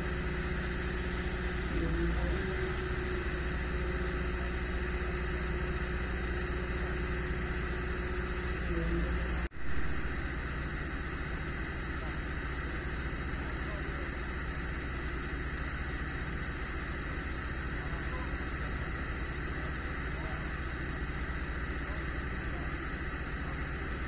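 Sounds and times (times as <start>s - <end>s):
diesel machinery idling: 0.0s - 24.0s.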